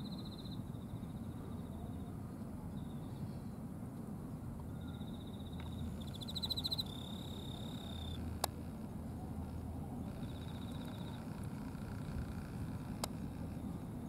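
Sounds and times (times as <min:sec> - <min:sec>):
insects chirping trills: 0:00.0 - 0:02.1, 0:04.7 - 0:13.1
low outdoor rumble: 0:00.0 - 0:14.0.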